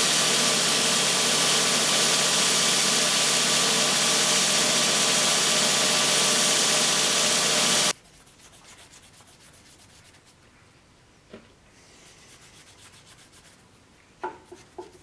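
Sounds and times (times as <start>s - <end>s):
belt grinder grinding metal: 0.0s - 7.9s.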